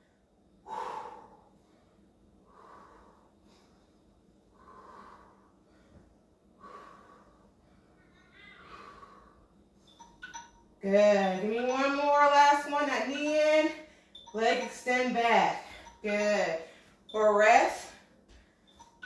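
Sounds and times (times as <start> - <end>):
woman breathing heavily: 0.0 - 10.2, 13.7 - 17.1, 17.8 - 19.0.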